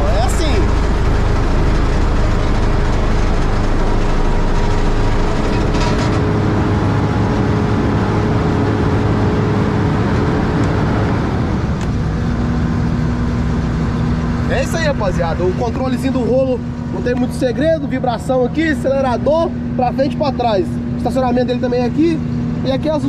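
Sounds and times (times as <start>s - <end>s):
roller compactor engine running: 0.0s - 23.0s.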